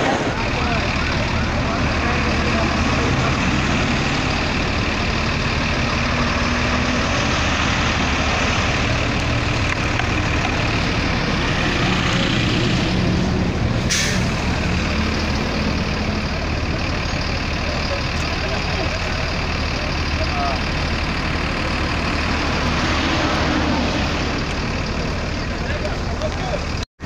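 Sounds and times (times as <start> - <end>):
buses engine rumble: 0.0 - 26.8
air brakes hiss: 13.8 - 14.4.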